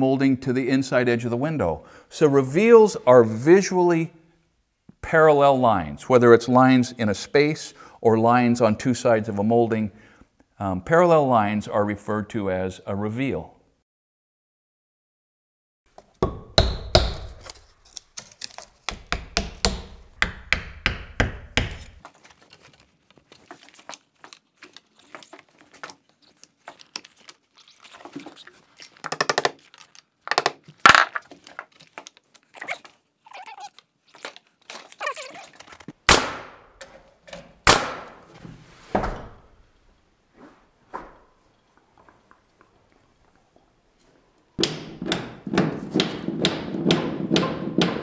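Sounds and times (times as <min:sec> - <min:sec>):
tapping wood shims: 0:18.8 - 0:22.0, 0:44.6 - 0:48.0.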